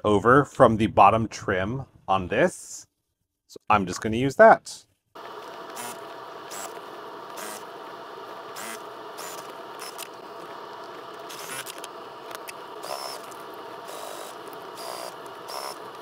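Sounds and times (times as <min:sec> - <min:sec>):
sewing machine stitching: 0:05.2 - 0:07.8, 0:08.4 - 0:16.0.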